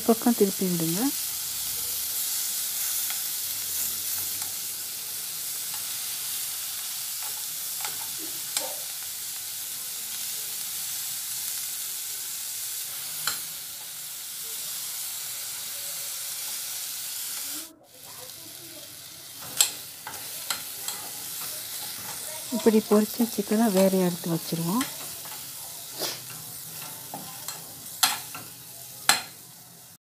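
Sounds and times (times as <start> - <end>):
chicken sizzling in oil: 0.0 - 30.0
spoon clicking on a pan: 19.4 - 22.2, 26.3 - 29.4.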